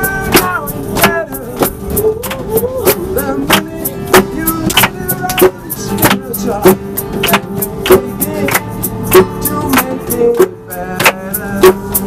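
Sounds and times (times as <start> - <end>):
person singing: 0.0 - 7.1, 7.8 - 12.0
strummed acoustic guitar: 0.0 - 12.0
hand-clapping: 2.3 - 6.3, 7.1 - 11.2.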